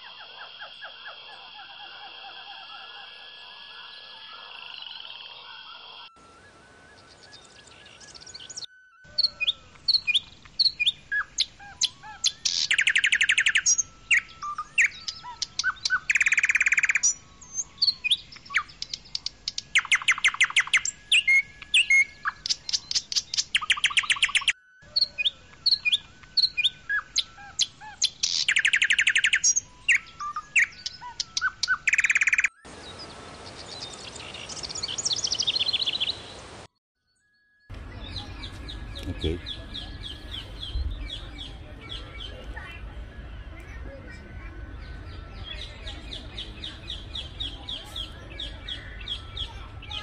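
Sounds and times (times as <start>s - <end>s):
faint bird twittering: 0.0s - 36.6s, 37.7s - 50.0s
songbird chirps and trills: 0.0s - 50.0s.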